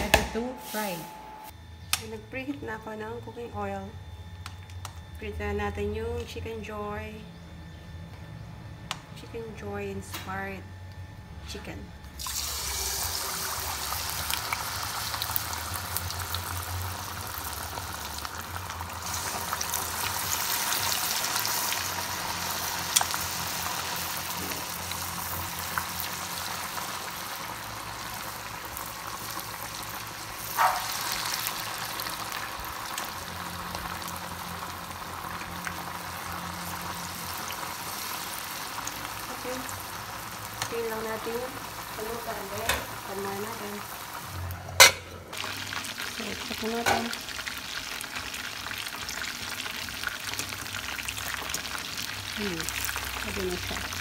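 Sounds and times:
chicken deep-frying in oil: 0:12.2 - 0:54.0.

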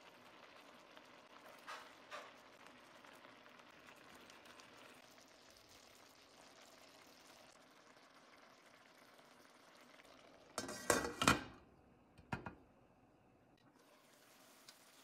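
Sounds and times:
sauce bubbling in a frying pan: 0:00.0 - 0:11.2, 0:13.6 - 0:15.0
glass lid clattering on pan: 0:10.6 - 0:11.6.

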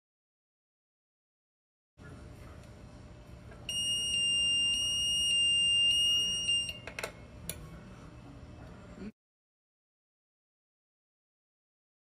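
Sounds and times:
high electronic alarm tone pulsing: 0:03.7 - 0:06.8.

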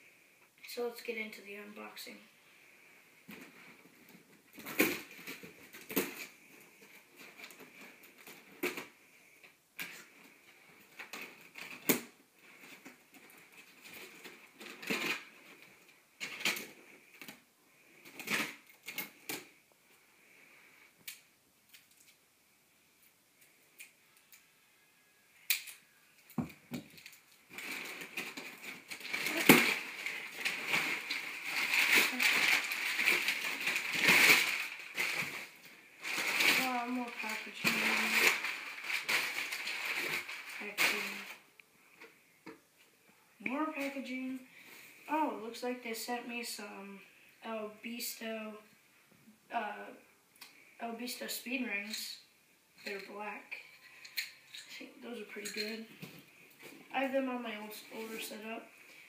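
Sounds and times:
packing material rustling: 0:09.8 - 0:17.4, 0:26.8 - 0:41.5.

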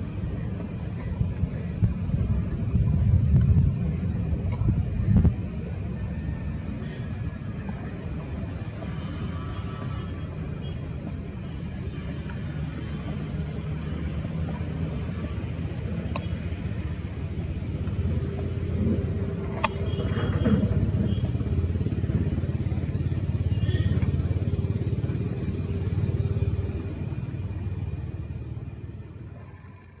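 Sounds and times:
jet engine rumble: 0:00.0 - 0:30.0
sharp click: 0:19.6 - 0:19.8.

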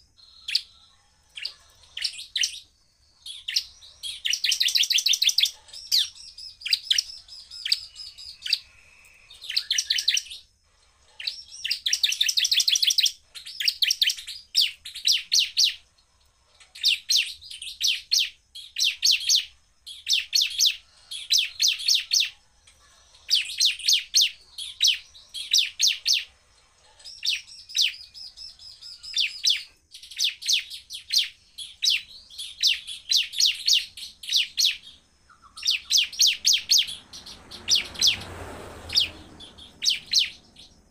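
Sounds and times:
bird singing rapid sharp notes: 0:00.0 - 0:15.9, 0:27.0 - 0:40.9.

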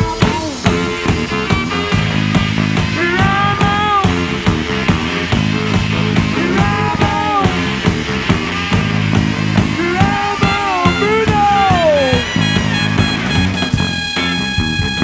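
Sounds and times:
bending sliding guitar lead line: 0:00.0 - 0:15.0
drums and bass beat: 0:00.0 - 0:15.0
electric guitar: 0:00.0 - 0:15.0.

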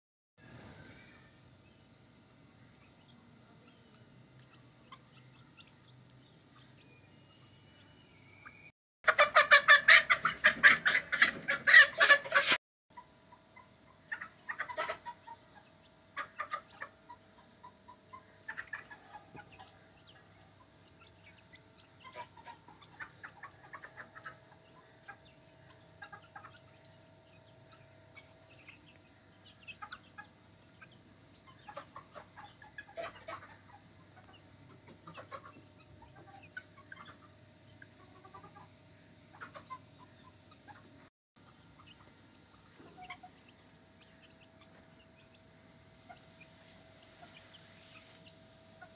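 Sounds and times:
young chickens calling: 0:00.4 - 0:48.9.

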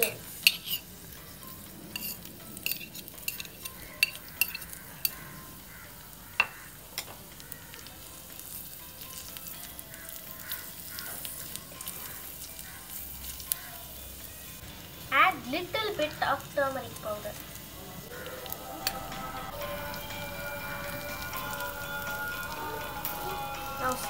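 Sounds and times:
onions sizzling in hot oil: 0:00.0 - 0:24.0
metal spatula scraping a pan: 0:00.3 - 0:05.2.

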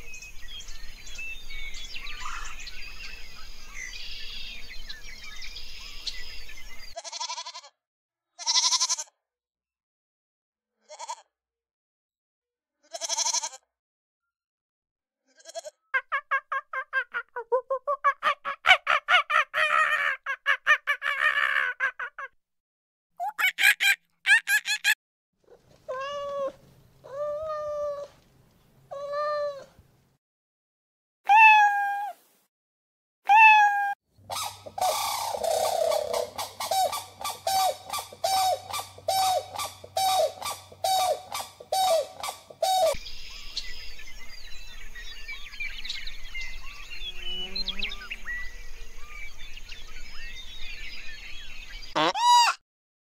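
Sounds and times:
goat bleats: 0:07.0 - 0:07.7, 0:08.4 - 0:09.1, 0:10.8 - 0:11.3, 0:12.8 - 0:13.6, 0:15.3 - 0:15.8
pitched animal calls: 0:33.3 - 0:43.0, 0:52.0 - 0:52.6
rapid pulsed animal calls: 0:34.3 - 0:43.0.

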